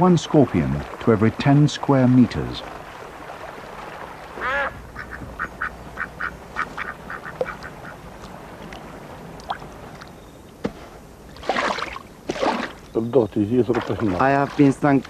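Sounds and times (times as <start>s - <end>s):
ducks quacking: 4.3s - 8.1s.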